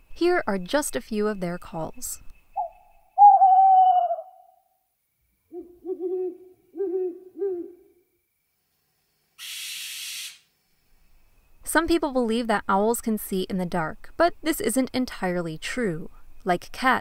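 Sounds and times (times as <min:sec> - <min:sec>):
deep owl hoots: 0:02.6 - 0:04.6, 0:05.5 - 0:08.0
owl falling call: 0:02.6 - 0:04.6
owl screech: 0:02.6 - 0:04.6, 0:09.4 - 0:10.4.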